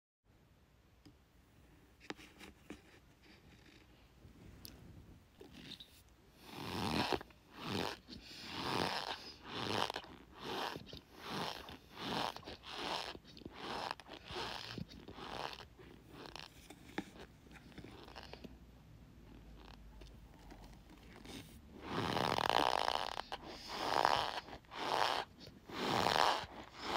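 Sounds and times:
cornstarch squeaking and crunching: 6.6s - 16.5s, 21.1s - 26.9s.

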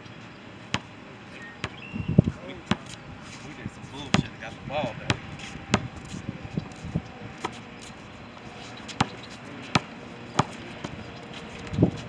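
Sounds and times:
basketball bouncing on concrete: 0.7s - 0.9s, 1.6s - 1.9s, 2.6s - 3.0s, 4.1s - 4.4s, 5.0s - 6.0s, 8.9s - 11.0s.

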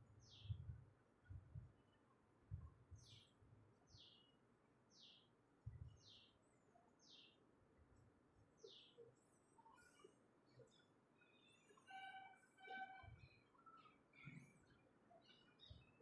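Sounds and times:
soft low thumps: 5.6s - 6.0s.

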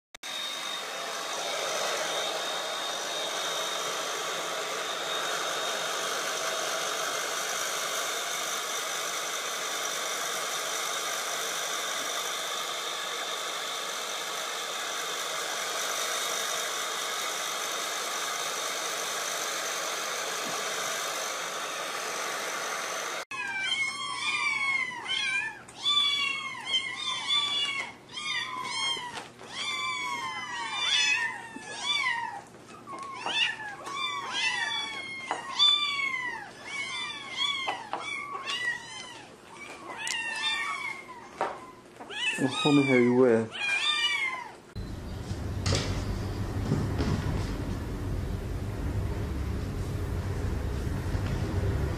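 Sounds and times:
hair dryer blowing: 0.2s - 23.3s, 44.7s - 51.9s
kittens meowing: 23.4s - 44.6s.

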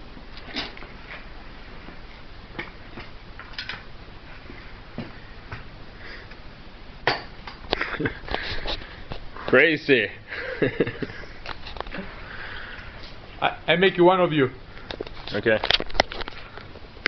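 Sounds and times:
low hiss: 0.0s - 15.6s.

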